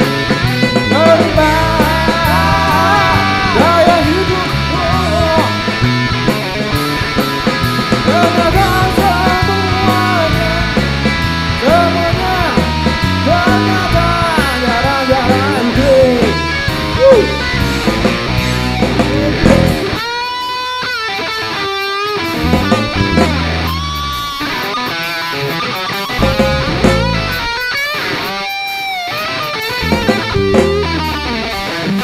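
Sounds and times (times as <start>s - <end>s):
rock band playing live: 0.0s - 32.0s
man singing: 0.8s - 5.8s, 8.0s - 10.9s, 11.6s - 18.0s, 18.6s - 20.0s.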